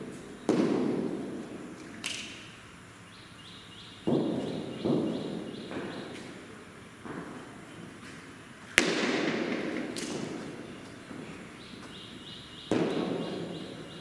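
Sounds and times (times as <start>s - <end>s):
cricket bat striking ball: 0.5s - 1.4s, 4.1s - 6.0s, 8.7s - 11.4s, 12.7s - 13.6s.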